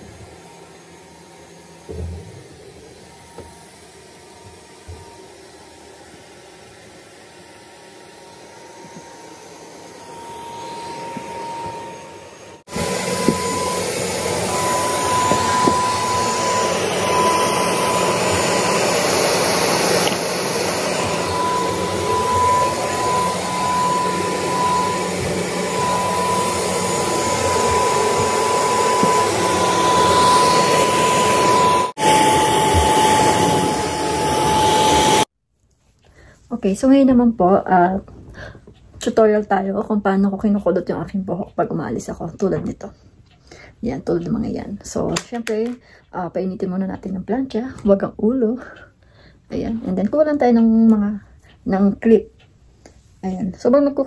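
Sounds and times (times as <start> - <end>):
vacuum cleaner running on carpet: 0.0 - 35.3.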